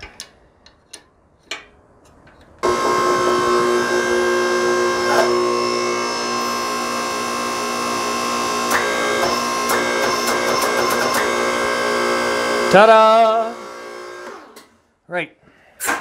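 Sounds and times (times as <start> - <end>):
hydraulic power pack humming: 2.6 - 14.7.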